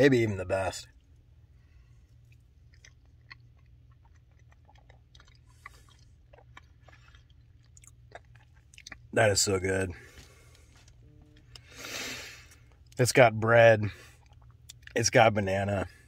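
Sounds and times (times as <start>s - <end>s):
low steady hum: 0.0s - 16.0s
person chewing soft food: 0.8s - 9.3s, 10.0s - 13.0s, 13.9s - 15.0s
wet mouth clicks: 2.3s - 9.1s.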